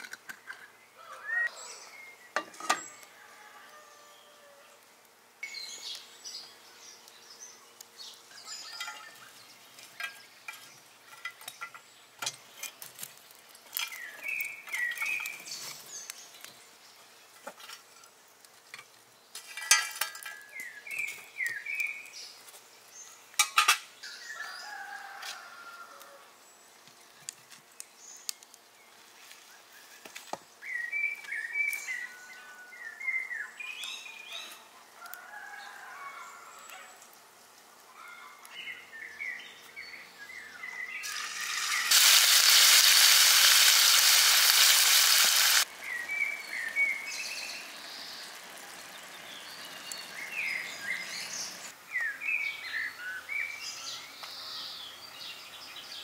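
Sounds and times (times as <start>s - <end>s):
birds chirping: 37.9s - 56.0s.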